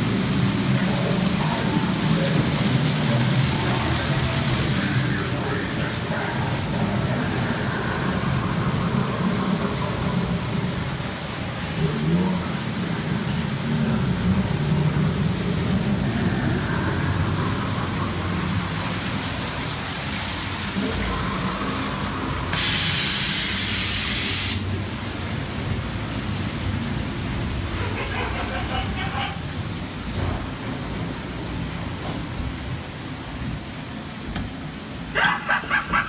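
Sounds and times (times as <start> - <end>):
low hum and murmur: 0.0 - 36.0
loud hiss: 16.5 - 25.0.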